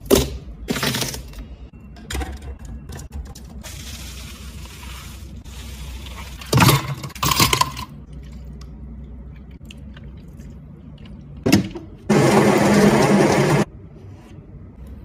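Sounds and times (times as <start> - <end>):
espresso machine whirring: 12.1 - 13.7.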